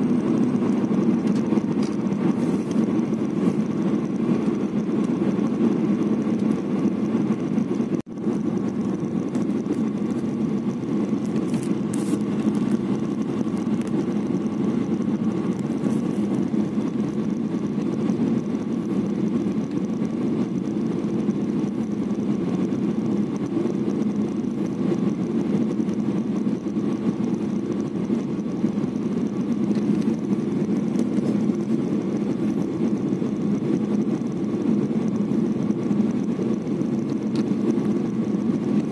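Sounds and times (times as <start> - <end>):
faint steady whine: 0.0 - 38.9
jet cabin engine noise: 0.0 - 38.9.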